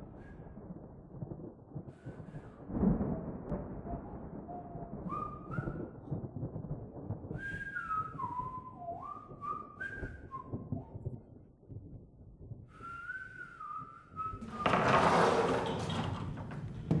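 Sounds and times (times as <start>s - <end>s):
person whistling a tune: 5.0s - 6.0s, 7.3s - 11.0s, 12.8s - 14.6s.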